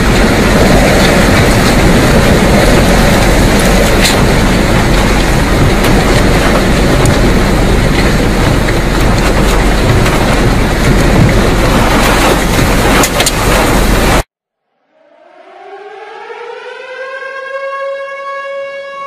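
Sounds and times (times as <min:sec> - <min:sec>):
strong wind rushing around car: 0:00.0 - 0:14.3.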